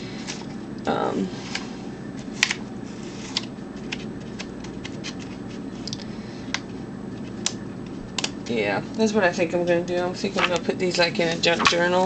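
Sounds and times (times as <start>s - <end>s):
faint steady hum: 0.0s - 12.0s
magazine pages rustling: 10.2s - 12.0s.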